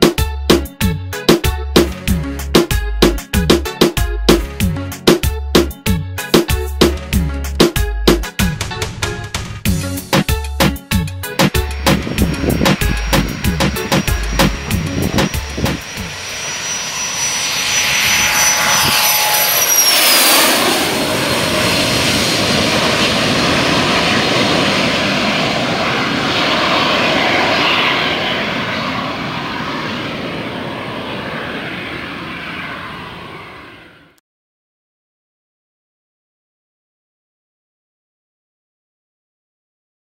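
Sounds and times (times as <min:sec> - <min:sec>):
jet rush: 0:09.8 - 0:34.0
jet engine whine: 0:11.0 - 0:34.2.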